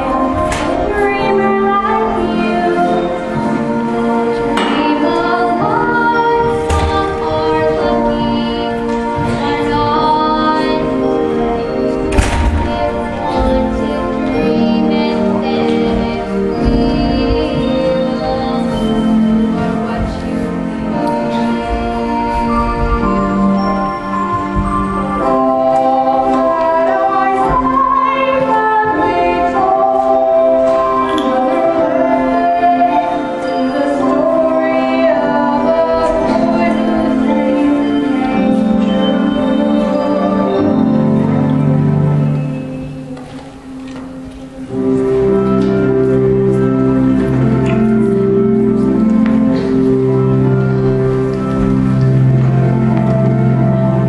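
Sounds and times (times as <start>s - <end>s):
woman singing sustained notes: 0.0s - 43.2s
instrumental accompaniment: 0.0s - 54.0s.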